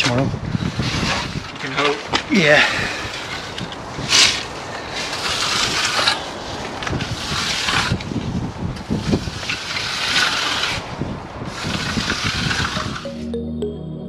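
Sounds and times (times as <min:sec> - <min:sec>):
trowel sweeping wet concrete: 0:03.0 - 0:08.0, 0:09.0 - 0:10.9, 0:11.5 - 0:13.0.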